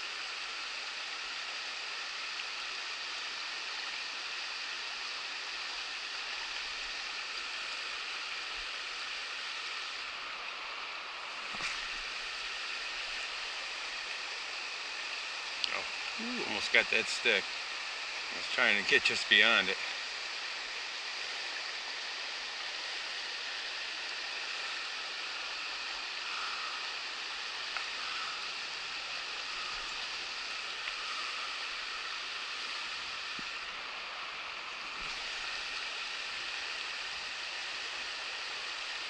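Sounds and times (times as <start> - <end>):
river flowing over rocks: 0.0 - 39.0.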